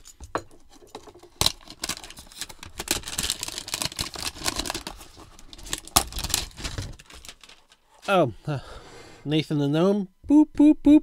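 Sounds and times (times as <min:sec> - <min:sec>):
crackling and rustling: 0:00.6 - 0:08.1
cardboard box tearing open: 0:02.8 - 0:07.6.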